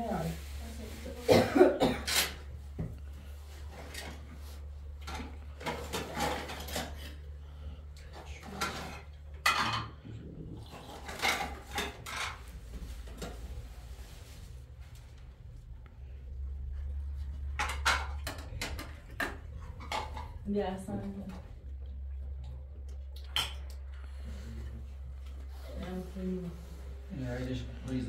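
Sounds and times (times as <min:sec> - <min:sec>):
steady low hum: 0:00.0 - 0:28.0
pots and dishes clattering: 0:01.3 - 0:02.5, 0:05.0 - 0:07.4, 0:08.1 - 0:13.4, 0:16.9 - 0:20.6.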